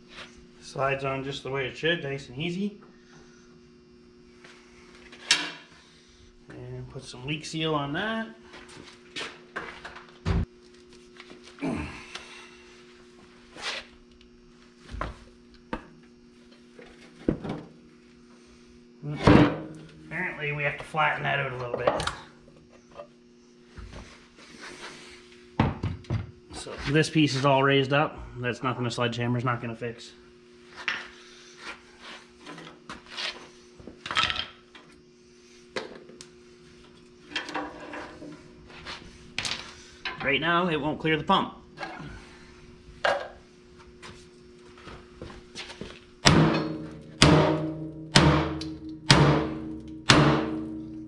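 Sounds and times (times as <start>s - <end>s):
metal clunks and scrapes: 37.3s - 38.4s.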